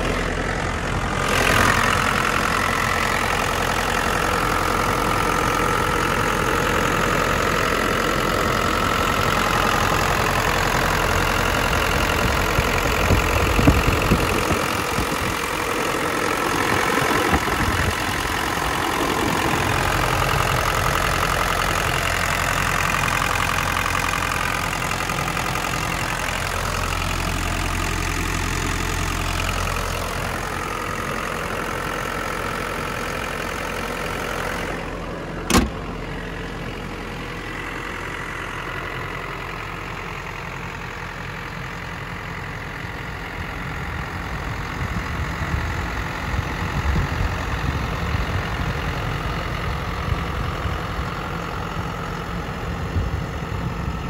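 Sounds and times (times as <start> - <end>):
diesel engine idling: 0.0 - 54.0
hood shutting thump: 35.4 - 36.0.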